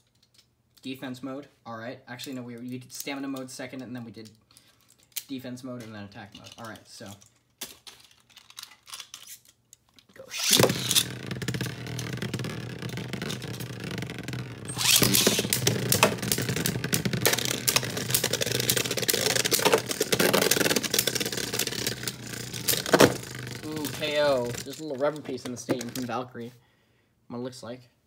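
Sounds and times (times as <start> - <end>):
plastic tops clacking: 4.6 - 26.2
spinning tops whirring: 10.2 - 26.2.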